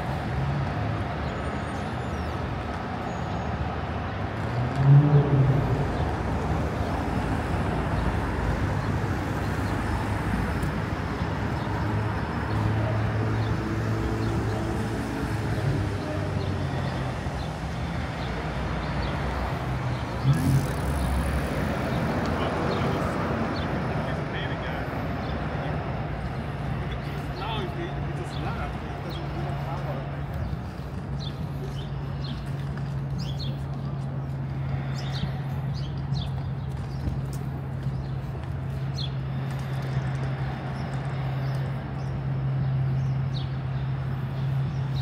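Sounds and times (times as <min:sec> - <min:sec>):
traffic rumble: 0:00.0 - 0:45.0
passersby talking: 0:10.6 - 0:45.0.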